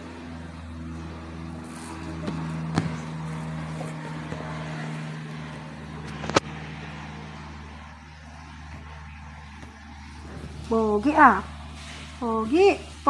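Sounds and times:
airplane engine drone overhead: 0:00.0 - 0:13.0.

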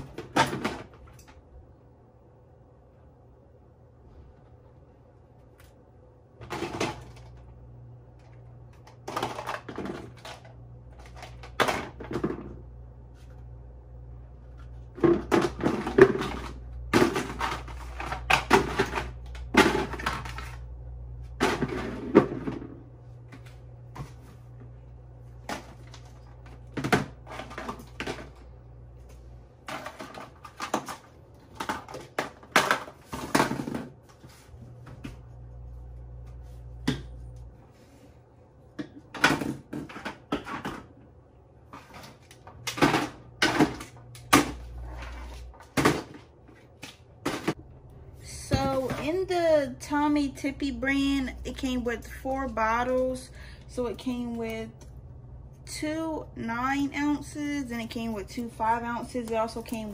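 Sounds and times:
steady low hum: 0:00.0 - 0:59.9
plastic items clacking: 0:08.2 - 0:12.6, 0:14.7 - 0:20.6, 0:29.6 - 0:33.9.

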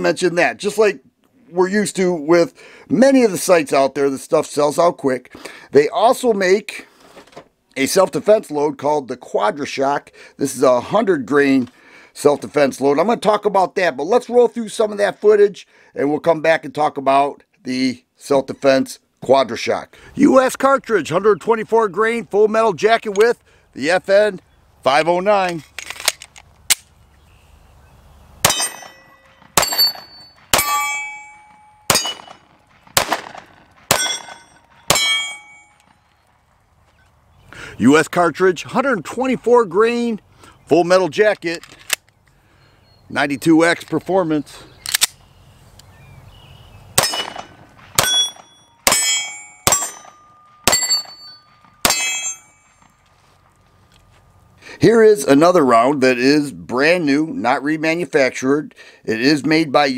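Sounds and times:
steel target ringing: 0:28.4 - 0:32.6, 0:33.9 - 0:36.0, 0:47.0 - 0:53.1
pistol shots: 0:28.4 - 0:36.0, 0:47.0 - 0:52.8
sharp click: 0:44.8 - 0:45.2.

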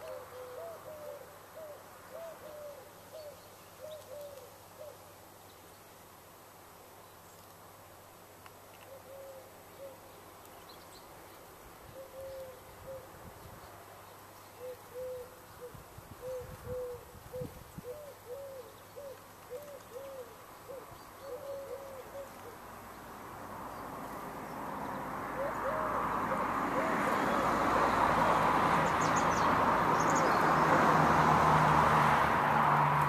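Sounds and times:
pigeon cooing: 0:00.0 - 0:05.0, 0:08.8 - 0:10.0, 0:11.9 - 0:13.1, 0:14.6 - 0:22.6, 0:25.3 - 0:27.4
rush of background noise: 0:00.1 - 0:33.0.

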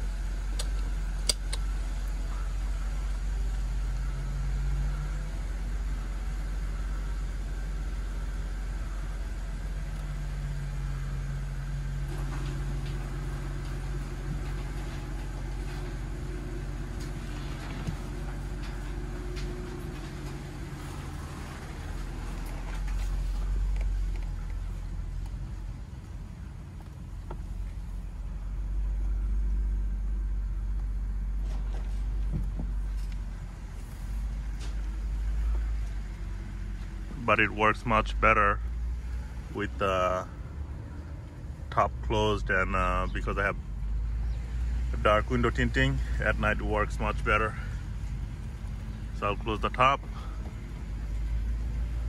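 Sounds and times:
car engine idling: 0:00.0 - 0:52.0
sharp clicks: 0:00.5 - 0:02.2.

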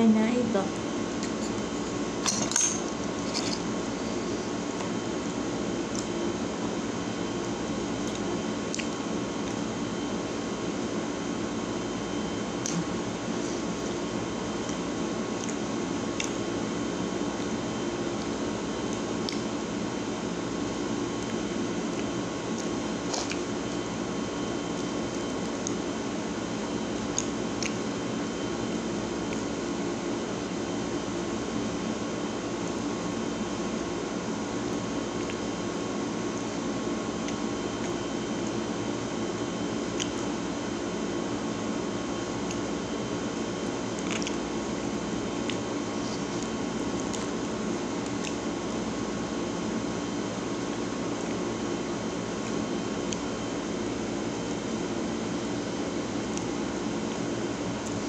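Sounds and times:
background hum and hiss: 0:00.0 - 0:58.0
quiet eating sounds: 0:07.4 - 0:09.7, 0:12.4 - 0:23.9, 0:34.6 - 0:38.7, 0:39.8 - 0:40.4, 0:43.8 - 0:48.6, 0:55.5 - 0:58.0
chewing: 0:08.0 - 0:09.6, 0:43.9 - 0:44.4.

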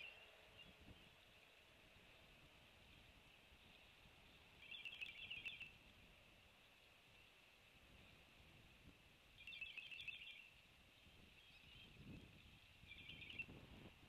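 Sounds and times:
chirping bursts: 0:12.8 - 0:13.6.

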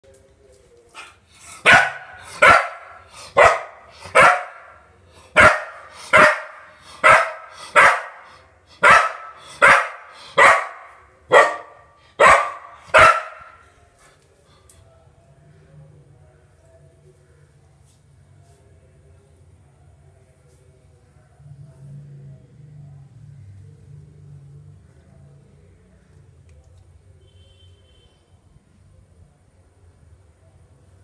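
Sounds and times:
dog barking: 0:01.6 - 0:13.6.

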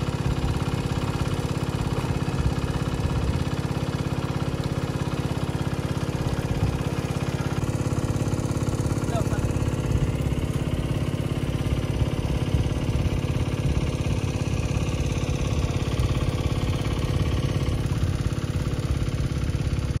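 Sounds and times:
engine running steadily: 0:00.0 - 0:20.0.

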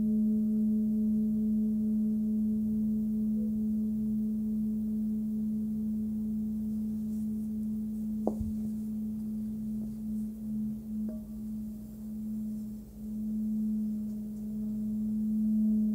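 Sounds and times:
singing bowl ringing: 0:03.2 - 0:15.9
brief knock: 0:08.3 - 0:08.7.

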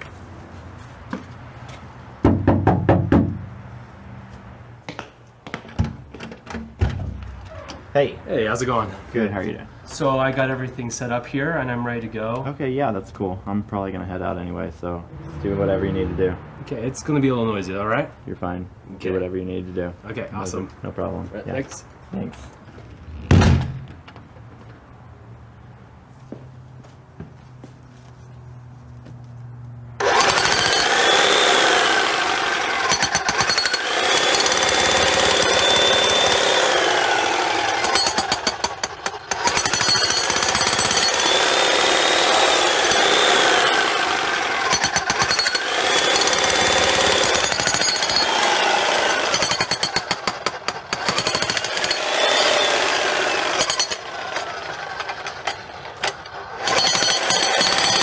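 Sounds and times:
jackhammer hammering: 0:30.0 - 0:58.0.

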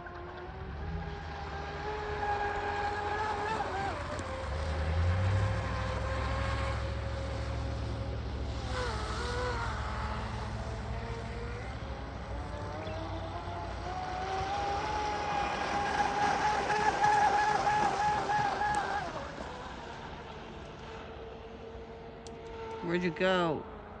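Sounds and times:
electric motor whining: 0:00.8 - 0:19.7.

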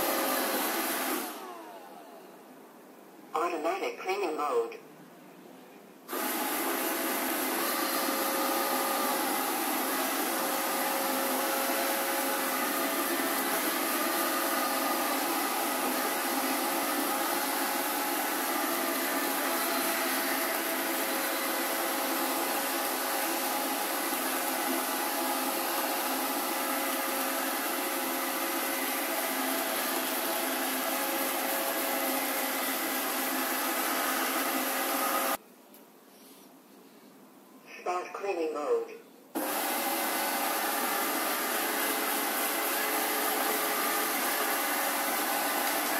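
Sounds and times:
robot vacuum cleaner whirring: 0:00.0 - 0:02.2, 0:06.1 - 0:35.4, 0:39.4 - 0:45.9.

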